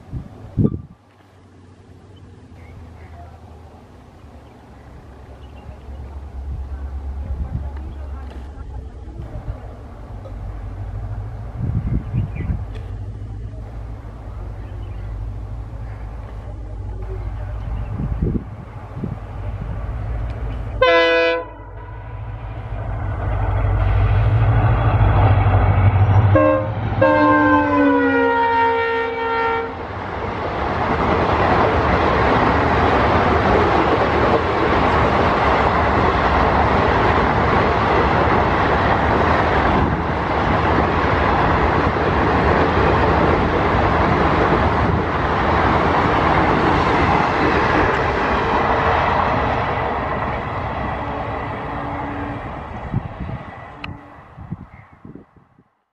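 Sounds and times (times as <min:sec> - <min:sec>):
train wheels clattering on track: 0:12.1 - 0:13.9, 0:30.3 - 0:51.0
diesel locomotive horn: 0:20.8 - 0:22.4, 0:25.9 - 0:29.8, 0:51.0 - 0:52.7, 0:53.7 - 0:54.4.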